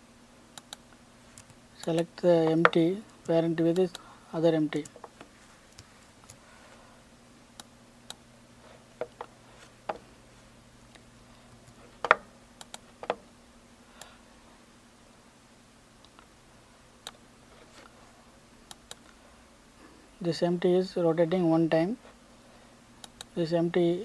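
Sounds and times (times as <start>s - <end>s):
faint steady low hum: 0.0s - 24.0s
computer mouse and keyboard clicks: 11.6s - 13.2s.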